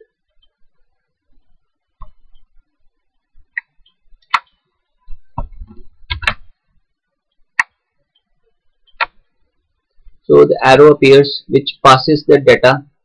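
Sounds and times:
computer mouse clicks: 6.1 - 6.5, 7.6 - 9.2.

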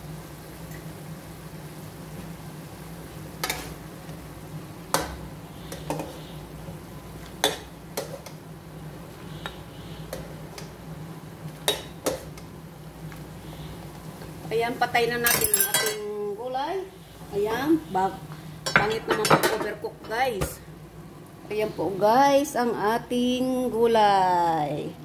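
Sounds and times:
metal ladle clinking on pans: 15.3 - 16.1.

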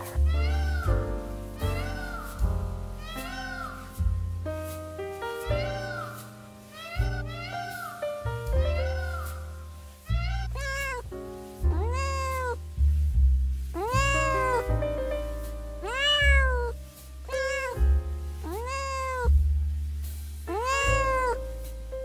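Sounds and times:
cats meowing: 0.0 - 2.4, 3.0 - 4.0, 5.4 - 8.0, 8.6 - 11.0, 11.7 - 12.6, 13.8 - 14.7, 15.8 - 19.3, 20.5 - 21.6
background music: 0.0 - 13.0.

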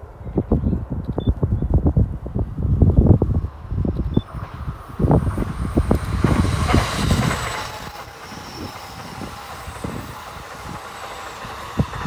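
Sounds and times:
electric train passing: 1.7 - 12.0.

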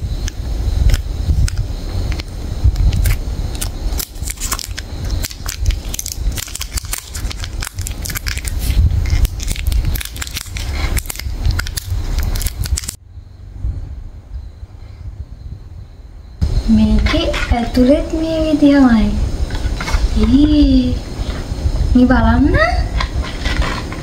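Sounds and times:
wrapper and foil crinkling: 2.9 - 13.0.

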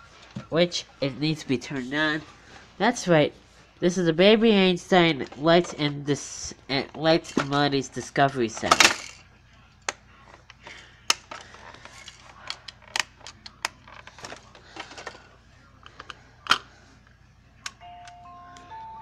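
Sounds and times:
plastic toy clicks and knocks: 8.6 - 9.2, 11.1 - 15.2
electronic toy melody: 17.7 - 19.0.

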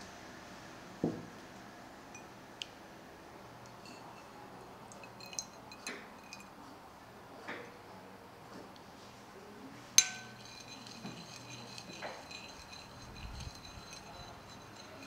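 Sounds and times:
glass and bowl clinking: 3.7 - 6.6, 10.0 - 15.0
faint bright ringing: 10.0 - 15.0.

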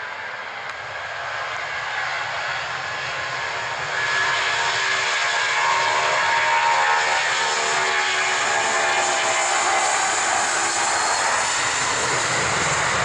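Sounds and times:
jet engines roaring: 0.0 - 13.0
whining tones: 6.5 - 13.0.

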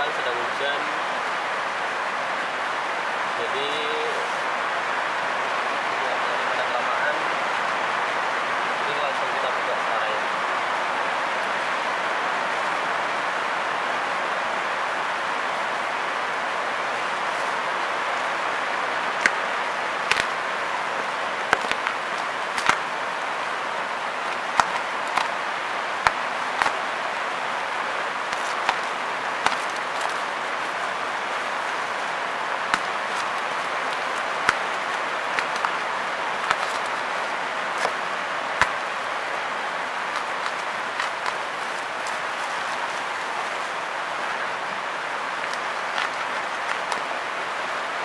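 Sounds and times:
rain hissing: 0.0 - 48.0
bubble wrap crackling: 19.0 - 47.6.

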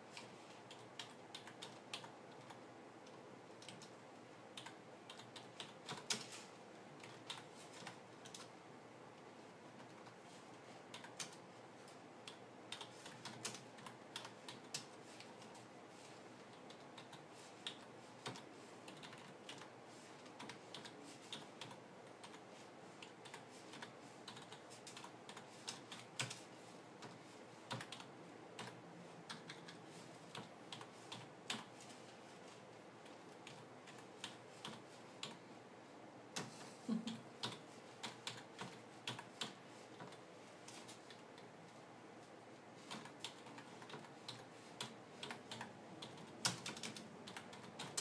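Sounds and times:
keyboard keys clicking: 0.1 - 4.0, 4.6 - 6.3, 12.2 - 15.6, 27.0 - 31.7, 42.8 - 48.0.

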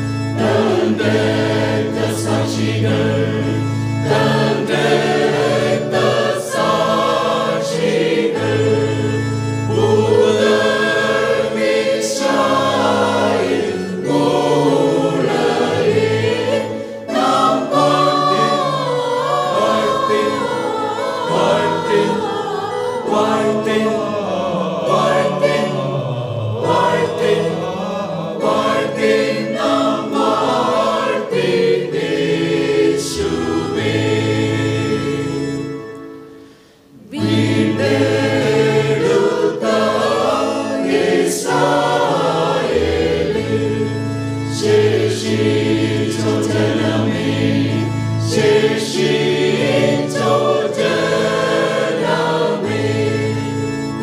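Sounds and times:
mixed choir singing: 0.0 - 36.1, 36.8 - 54.0.

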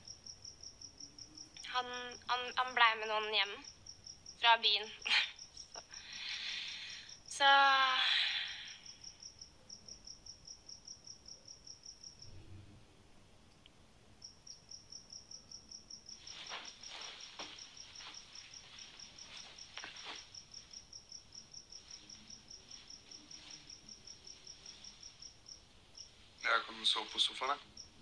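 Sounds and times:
soft rustles: 16.1 - 20.9, 21.6 - 25.2.

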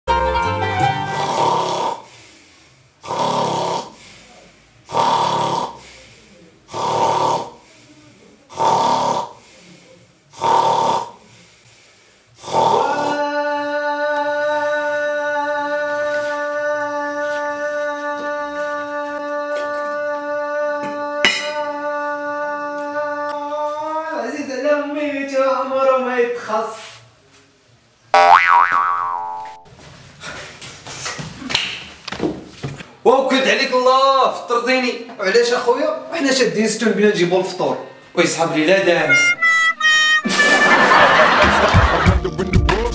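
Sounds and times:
man snoring loudly: 1.1 - 2.1, 3.0 - 4.0, 4.9 - 5.9, 6.7 - 7.6, 8.5 - 9.4, 10.3 - 11.2, 12.4 - 13.3.

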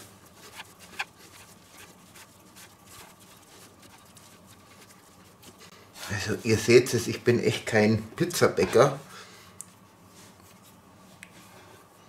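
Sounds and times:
hands kneading dough: 0.0 - 7.0.

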